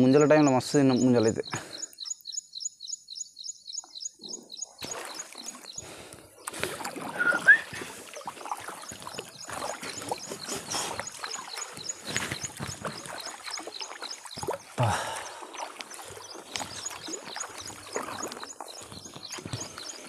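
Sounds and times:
water sloshing and splashing: 4.8s - 20.0s.

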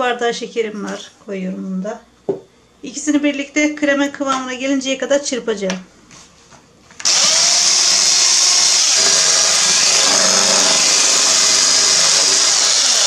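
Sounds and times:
electric hand mixer whisking: 7.0s - 13.0s.

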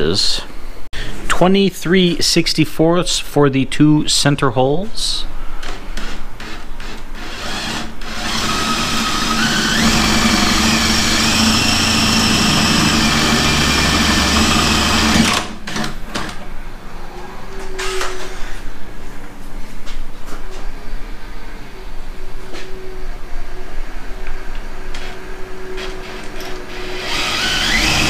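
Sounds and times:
electric drill boring through metal: 6.0s - 15.8s, 26.7s - 28.0s.

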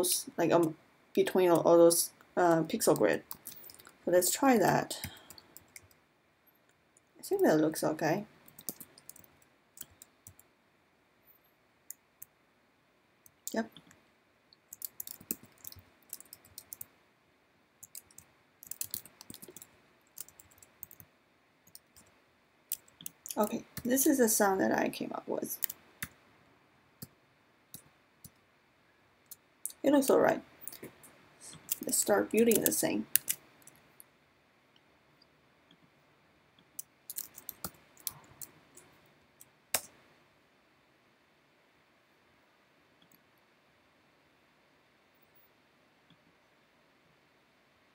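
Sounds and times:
computer keyboard and mouse clicking: 2.9s - 4.0s, 5.0s - 6.0s, 8.5s - 10.5s, 14.7s - 16.9s, 17.8s - 22.1s, 22.7s - 24.0s, 31.5s - 33.8s, 36.6s - 40.0s
keyboard keys clicking: 14.7s - 16.9s, 17.8s - 21.1s, 31.6s - 33.4s.

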